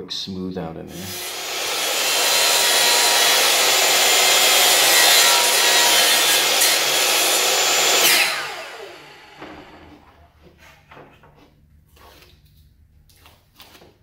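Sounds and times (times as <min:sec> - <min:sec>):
saw motor winding down: 0:00.9 - 0:09.9
chop saw rasping wood: 0:01.0 - 0:10.0.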